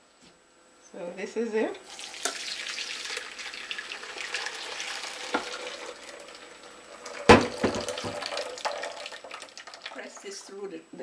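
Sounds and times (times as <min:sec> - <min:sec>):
liquid trickling through strainer: 0:01.9 - 0:10.3
loud knocks: 0:07.3 - 0:08.2.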